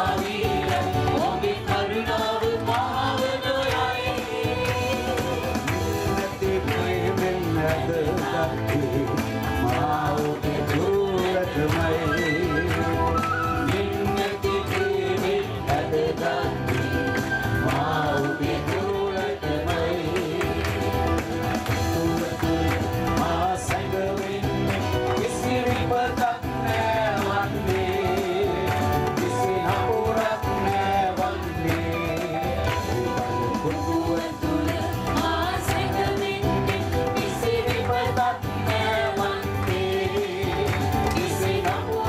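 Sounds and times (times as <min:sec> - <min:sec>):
electronic keyboard: 0:00.0 - 0:42.0
voices singing: 0:00.0 - 0:42.0.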